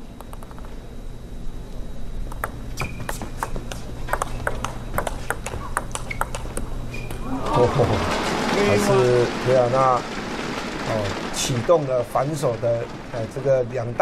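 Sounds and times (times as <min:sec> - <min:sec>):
table tennis ball hits: 0:02.3 - 0:07.4.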